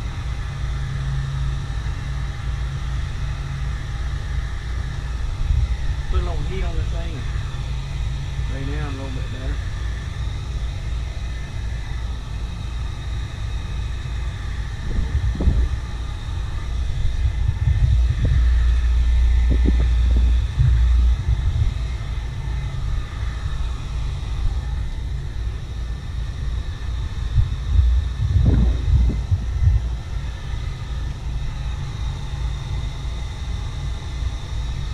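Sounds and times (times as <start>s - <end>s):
wind rumbling on microphone: 3.9s - 33.8s.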